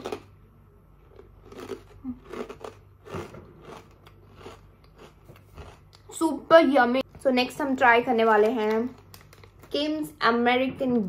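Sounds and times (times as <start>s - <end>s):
person chewing crisps: 0.0s - 0.3s, 1.0s - 6.1s.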